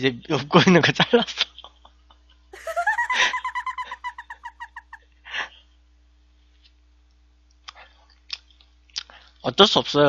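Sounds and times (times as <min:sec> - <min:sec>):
high-pitched giggle: 0:02.6 - 0:05.0.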